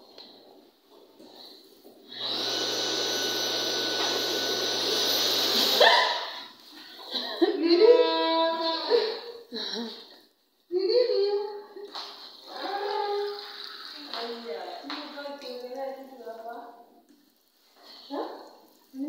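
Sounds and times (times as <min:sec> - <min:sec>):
electric hand dryer blowing: 0:02.1 - 0:06.0.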